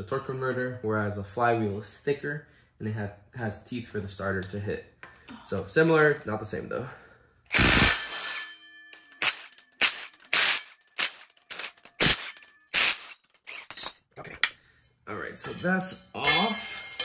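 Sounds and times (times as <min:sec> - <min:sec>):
metal clanks and clicks: 0:08.2 - 0:14.0.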